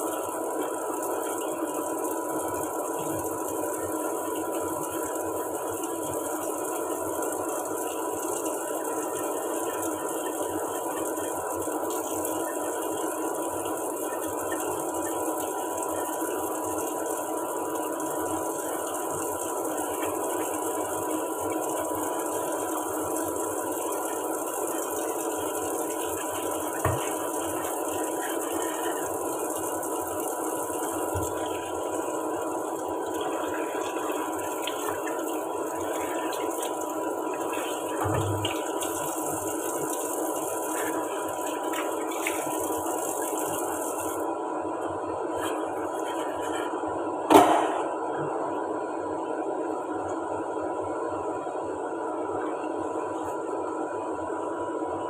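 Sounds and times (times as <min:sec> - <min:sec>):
tap running into sink: 0:26.7 - 0:27.6, 0:31.1 - 0:31.4, 0:37.6 - 0:39.1
pot knocking against sink: 0:26.8 - 0:27.2, 0:38.0 - 0:38.6.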